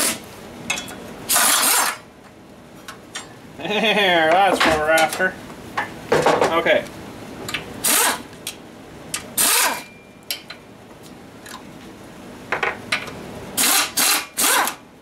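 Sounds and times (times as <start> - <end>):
power wrench spinning: 1.3 - 2.0, 7.8 - 8.2, 9.4 - 9.8, 13.6 - 14.8.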